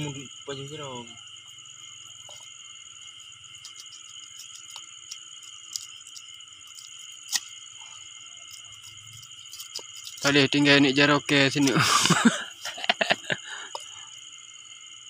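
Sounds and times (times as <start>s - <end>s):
crickets and night insects: 0.0s - 15.0s.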